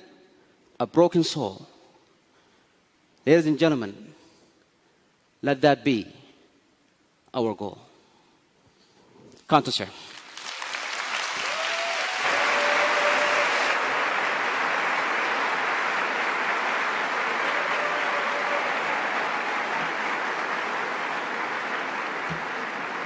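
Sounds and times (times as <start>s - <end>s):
large audience applauding: 10.1s - 23.0s.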